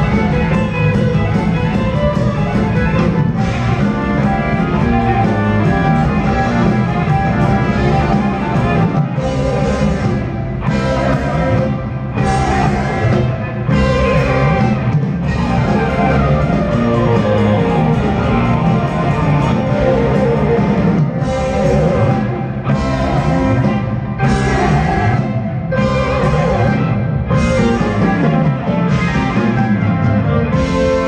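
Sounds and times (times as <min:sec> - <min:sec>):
live rock band playing loudly: 0:00.0 - 0:31.0.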